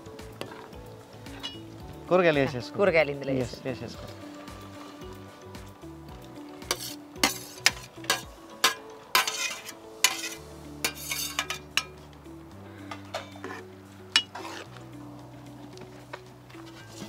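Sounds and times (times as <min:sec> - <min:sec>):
soft background music: 0:00.0 - 0:17.0
food sizzling: 0:03.9 - 0:12.3, 0:13.4 - 0:15.0
spoon scraping a pan: 0:06.6 - 0:12.0, 0:13.2 - 0:14.8, 0:16.6 - 0:17.0.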